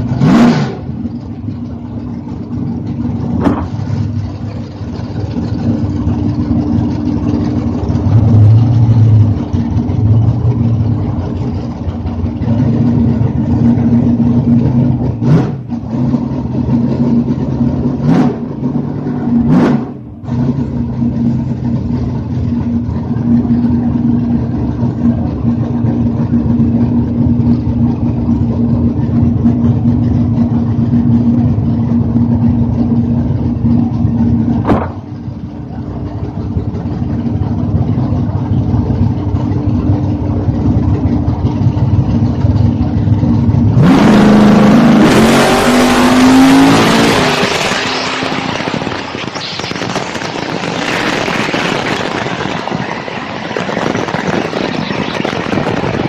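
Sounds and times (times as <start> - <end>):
engine revving hard: 0.0 - 1.0, 15.1 - 17.0, 17.8 - 20.7, 43.7 - 56.0
race car engine idling: 0.0 - 43.9, 47.5 - 56.0
rush of engine and wind: 0.0 - 56.0.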